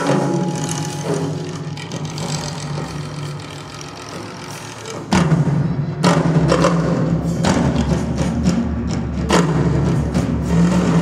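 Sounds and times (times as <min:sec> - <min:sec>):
low drone: 0:00.0 - 0:08.1.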